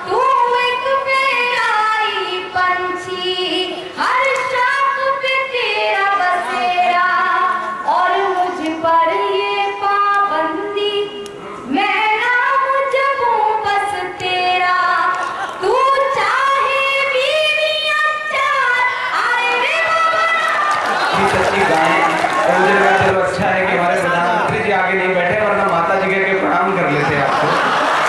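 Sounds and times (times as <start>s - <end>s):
woman singing: 0.1s - 20.4s.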